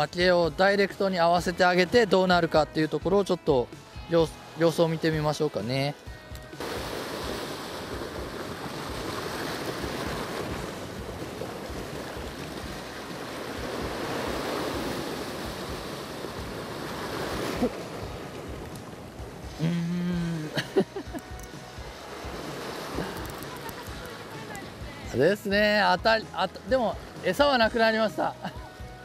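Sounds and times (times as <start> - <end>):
wind: 0.0 - 29.0
waves washing on rocky shore: 6.6 - 19.6, 21.8 - 26.0.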